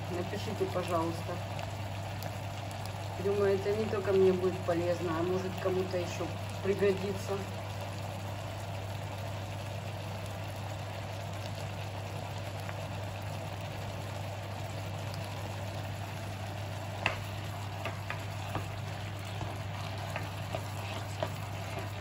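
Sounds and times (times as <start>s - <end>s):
mushrooms sizzling in a pan: 0.0s - 22.0s.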